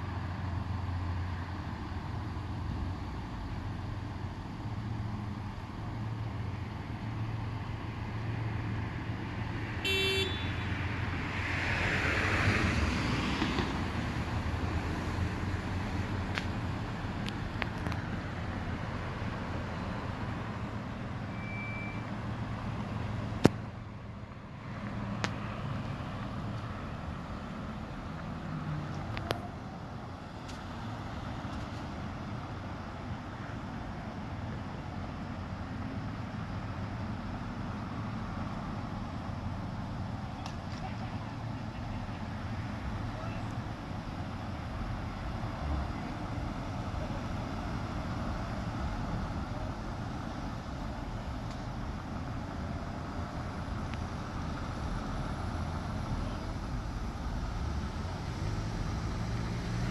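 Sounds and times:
steady low traffic hum: 0:00.0 - 0:59.9
car passing: 0:05.3 - 0:59.9
high beep: 0:21.3 - 0:22.1.

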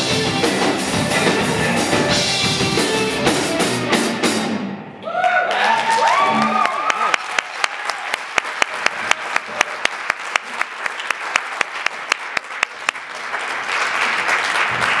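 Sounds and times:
audience applauding: 0:05.1 - 0:15.0
loud close hand claps: 0:05.5 - 0:15.0.

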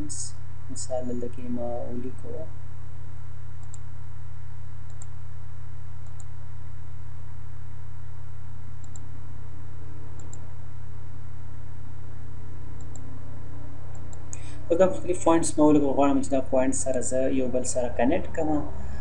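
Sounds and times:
low electrical hum: 0:00.0 - 0:19.0
computer mouse clicks: 0:03.6 - 0:03.9, 0:04.8 - 0:05.2, 0:06.0 - 0:06.3, 0:08.8 - 0:09.0, 0:10.1 - 0:10.5, 0:12.8 - 0:13.0.

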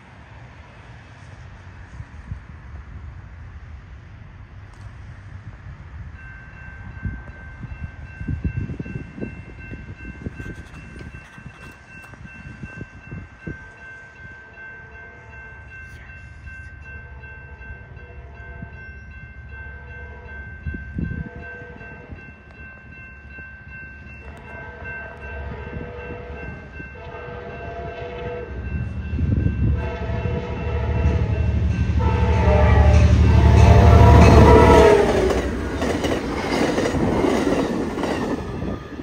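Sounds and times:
train horn blasts: 0:17.0 - 0:18.8, 0:19.7 - 0:20.4, 0:24.2 - 0:35.6.

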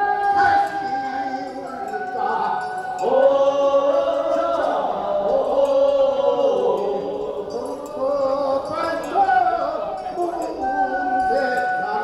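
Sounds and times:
voices singing a chant: 0:00.0 - 0:12.0.

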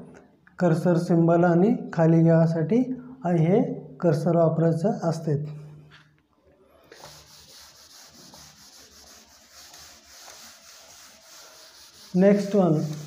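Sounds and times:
faint rubbing hiss: 0:06.8 - 0:13.0.

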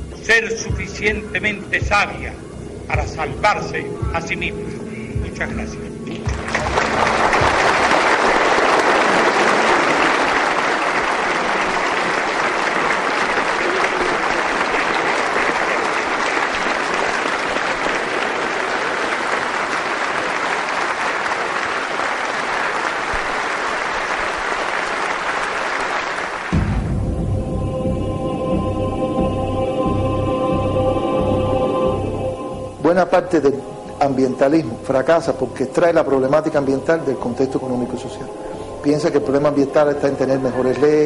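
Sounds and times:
audience applauding: 0:06.1 - 0:26.9, 0:35.8 - 0:41.0.

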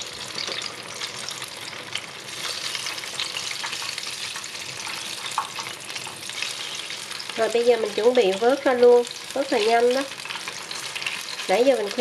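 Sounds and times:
food deep-frying in hot oil: 0:00.0 - 0:12.0.

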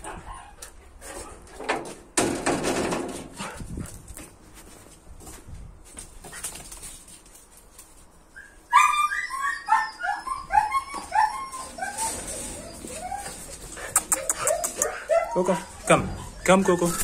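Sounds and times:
dog yelping: 0:08.4 - 0:17.0.

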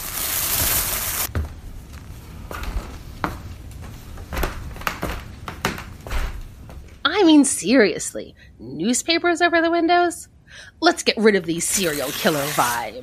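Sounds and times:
footsteps on wooden floorboards: 0:01.3 - 0:07.0.

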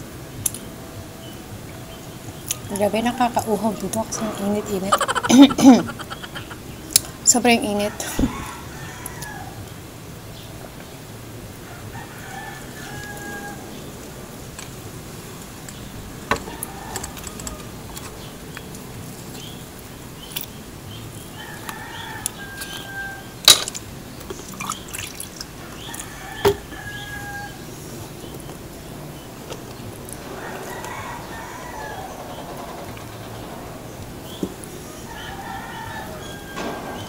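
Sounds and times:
rooster crowing: 0:03.8 - 0:06.8, 0:07.6 - 0:09.9, 0:11.6 - 0:14.2, 0:16.1 - 0:18.4, 0:21.2 - 0:23.5, 0:25.6 - 0:27.8, 0:30.0 - 0:37.0.

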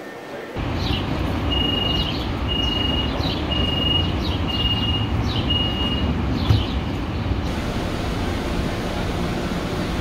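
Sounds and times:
door-closing warning beeps: 0:01.5 - 0:06.1.

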